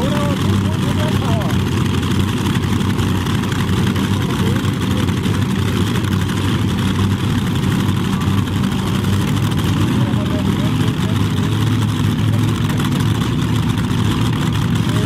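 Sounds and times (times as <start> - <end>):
tractor engine running steadily: 0.0 - 15.0.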